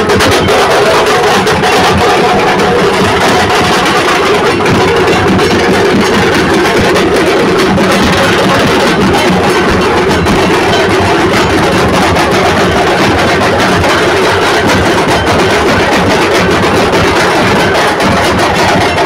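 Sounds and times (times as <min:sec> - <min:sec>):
street drummers drumming: 0:00.0 - 0:19.0.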